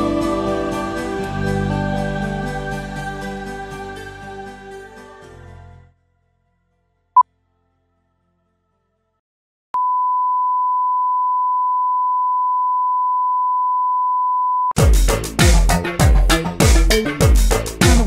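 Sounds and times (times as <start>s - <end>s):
music with heavy drum beat: 14.8s - 18.0s.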